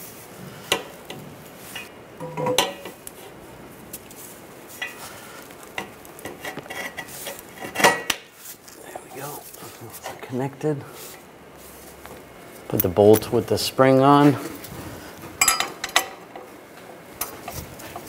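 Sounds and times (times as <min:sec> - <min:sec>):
ringing metal knocks: 0:02.2 - 0:02.8.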